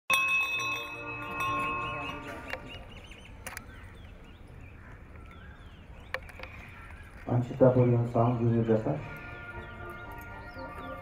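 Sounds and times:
bell ringing: 0.1s - 2.7s
birds chirping: 0.1s - 11.0s.

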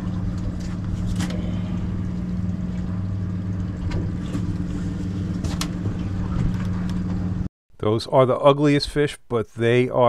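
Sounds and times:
outboard motors idling: 0.0s - 7.5s.

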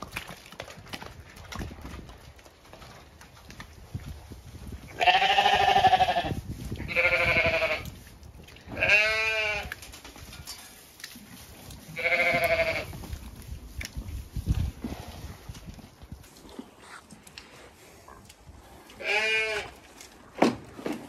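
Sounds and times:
sheep bleating: 5.0s - 7.9s, 8.8s - 9.8s, 12.0s - 12.9s, 19.0s - 19.7s.

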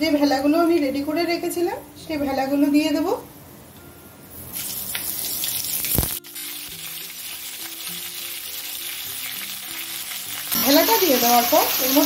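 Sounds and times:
frying in hot oil sizzle: 4.3s - 12.0s.

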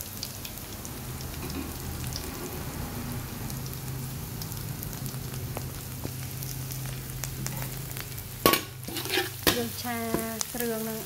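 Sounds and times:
food sizzling in hot oil: 0.0s - 11.0s
small crackles: 4.4s - 11.0s.

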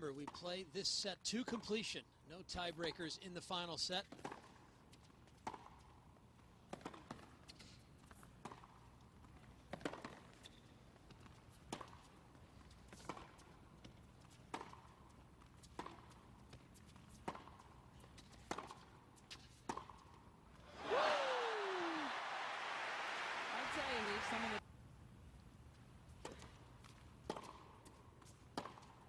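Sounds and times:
hushed crowd: 20.7s - 24.6s
tennis racket hitting ball: 28.5s - 29.0s.

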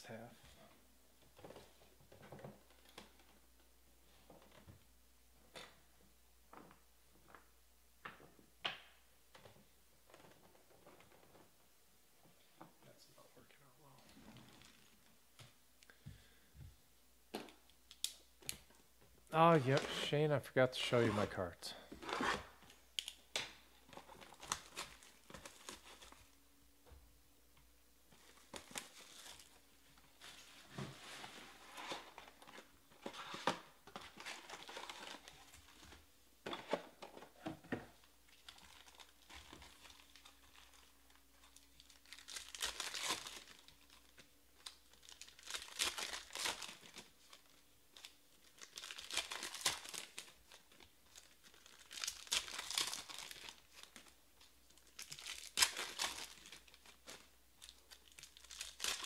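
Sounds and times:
plastic wrap crinkling: 13.9s - 15.2s, 22.0s - 26.4s, 28.2s - 37.2s, 37.9s - 59.0s
foil packs crinkled and torn open: 23.9s - 26.2s, 28.2s - 29.6s, 34.0s - 35.9s, 38.3s - 59.0s.

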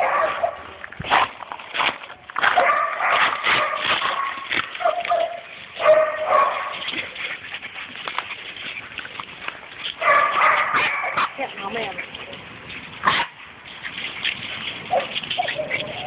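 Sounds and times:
paws scraping wire fence: 0.0s - 16.0s
puppies whining and yipping: 4.0s - 12.3s, 13.6s - 16.0s.

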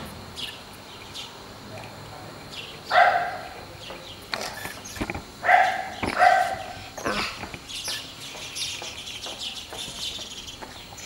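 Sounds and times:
dog barking: 2.9s - 3.6s, 5.4s - 6.8s.

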